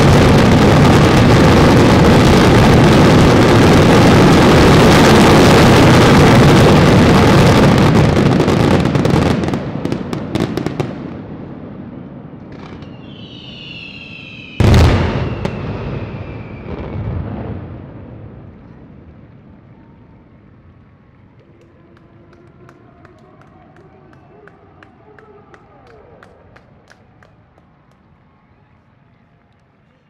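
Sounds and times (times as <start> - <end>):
fireworks bangs and crackling: 0.0 - 28.2
falling firework whistle: 12.5 - 17.1.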